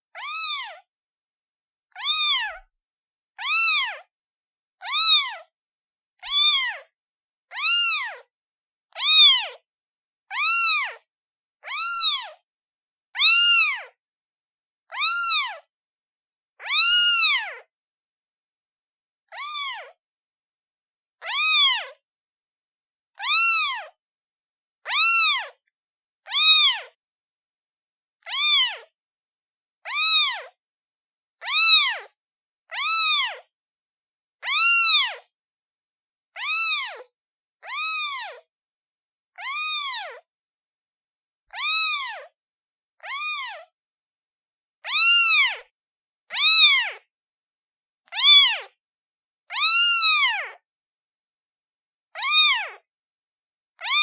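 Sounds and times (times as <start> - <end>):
kitten meowing: 0.1 - 0.9, 1.9 - 2.7, 3.4 - 4.1, 4.8 - 5.5, 6.2 - 6.9, 7.5 - 8.3, 8.9 - 9.6, 10.3 - 11.0, 11.6 - 12.4, 13.2 - 14.0, 14.9 - 15.7, 16.6 - 17.7, 19.3 - 20.0, 21.2 - 22.0, 23.2 - 24.0, 24.8 - 25.6, 26.2 - 27.0, 28.2 - 28.9, 29.8 - 30.6, 31.4 - 33.5, 34.4 - 35.3, 36.4 - 38.5, 39.4 - 40.2, 41.5 - 42.3, 43.0 - 43.7, 44.8 - 45.7, 46.3 - 47.1, 48.1 - 48.8, 49.5 - 50.6, 52.1 - 52.9, 53.8 - 54.0.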